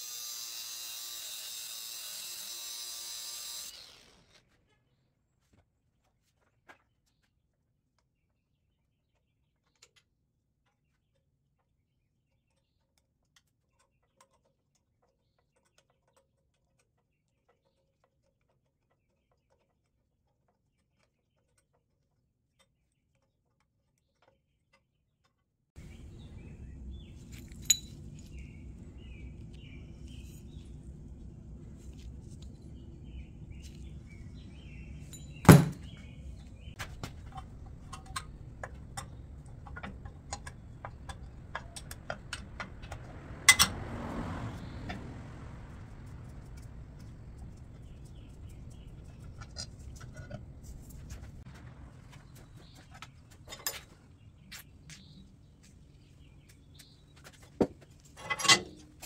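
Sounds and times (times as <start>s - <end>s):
steady low hum: 25.8s - 42.8s.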